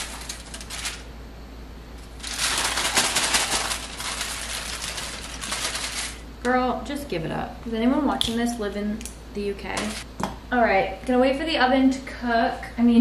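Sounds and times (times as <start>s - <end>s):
aluminium foil crinkling: 0.0s - 1.1s, 2.0s - 6.2s.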